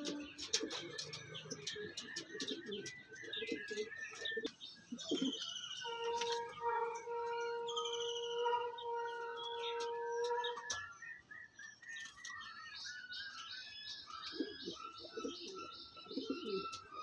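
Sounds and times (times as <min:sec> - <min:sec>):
pigeons cooing: 0:00.0 - 0:11.0, 0:12.0 - 0:17.0
bird chirps: 0:00.0 - 0:17.0.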